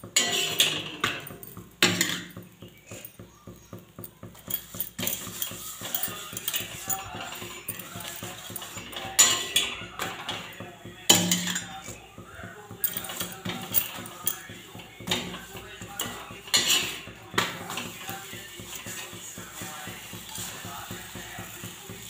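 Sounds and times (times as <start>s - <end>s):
metal spatula scraping on iron: 0.1s - 2.4s, 4.5s - 22.0s
sharp metal clank: 0.2s - 2.4s, 11.1s - 11.8s.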